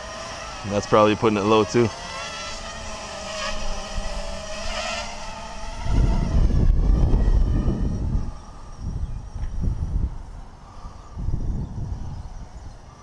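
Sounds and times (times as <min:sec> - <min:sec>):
drone motors whining: 0:00.0 - 0:13.0
wind buffeting microphone: 0:02.6 - 0:13.0.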